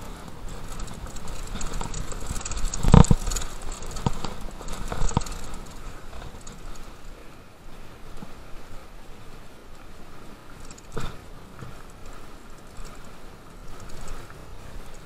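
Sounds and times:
bike rattling over dirt trail: 0:00.0 - 0:07.2, 0:10.4 - 0:15.0.

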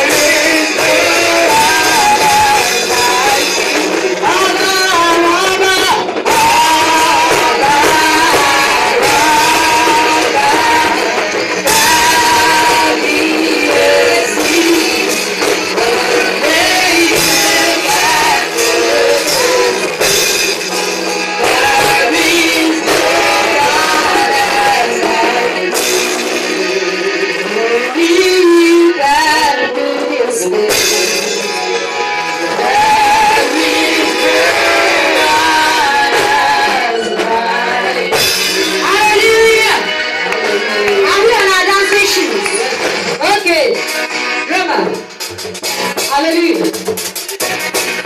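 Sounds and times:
woman singing into microphone: 0:00.0 - 0:20.2, 0:21.4 - 0:31.7, 0:32.4 - 0:43.7
band with guitar: 0:00.0 - 0:48.0.

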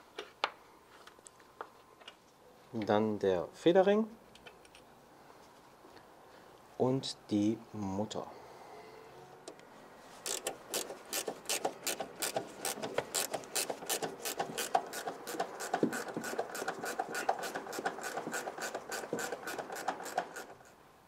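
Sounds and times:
ratchet wrench clicking: 0:10.2 - 0:20.5.

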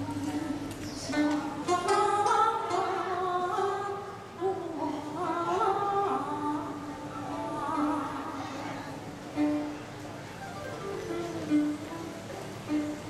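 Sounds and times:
woman singing slow melody: 0:00.0 - 0:08.6.

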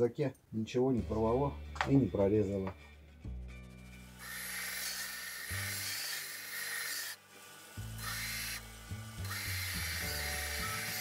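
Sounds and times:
plastic rasping on belt grinder: 0:03.8 - 0:11.0.

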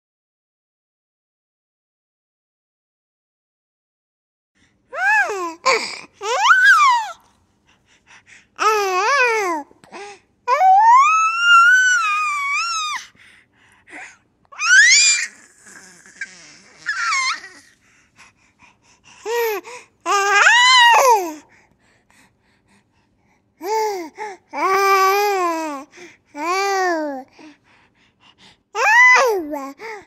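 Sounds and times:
baby laughing: 0:14.9 - 0:17.7.

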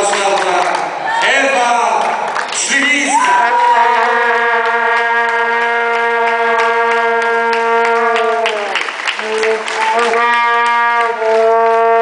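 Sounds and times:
scattered clapping: 0:00.0 - 0:12.0
horn blown in long note: 0:03.3 - 0:12.0.

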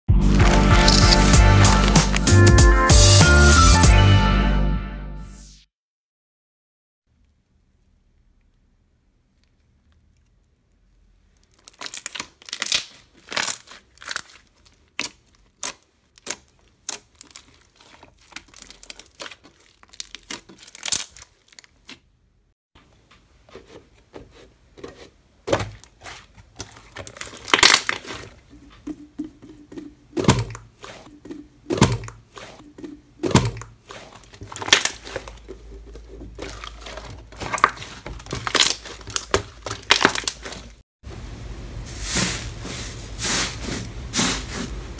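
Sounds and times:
slime popping: 0:00.4 - 0:02.3, 0:26.6 - 0:40.7.

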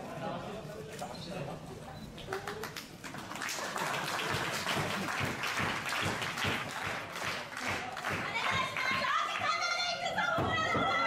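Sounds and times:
crowd applauding: 0:02.2 - 0:09.6.

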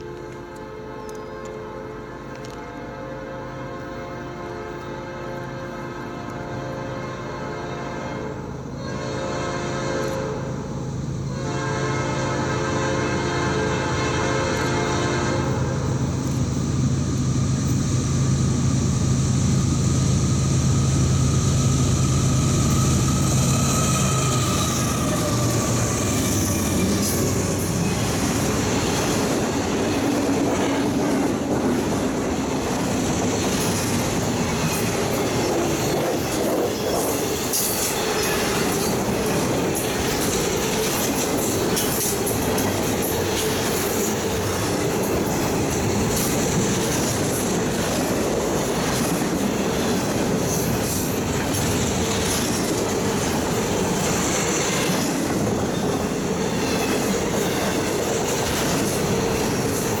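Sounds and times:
steel wheels rumbling on rails: 0:00.0 - 1:00.0
wheels clicking over rail joints: 0:22.6 - 1:00.0.

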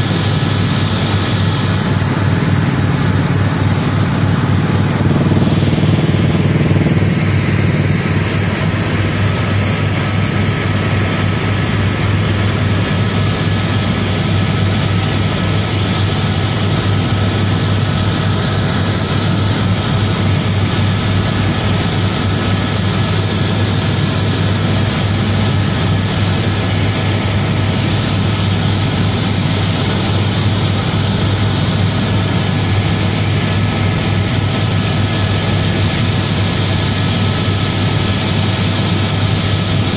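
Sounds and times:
helicopter rotor and engine drone: 0:00.0 - 0:39.9.

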